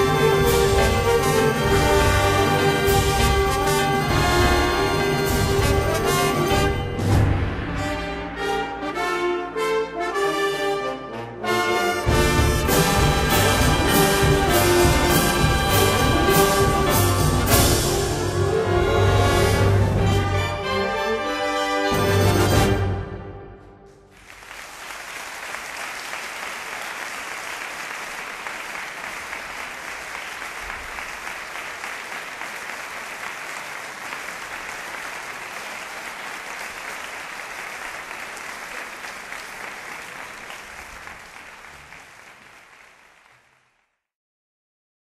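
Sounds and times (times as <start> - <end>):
audience applause: 12.3 - 17.9, 24.1 - 44.0.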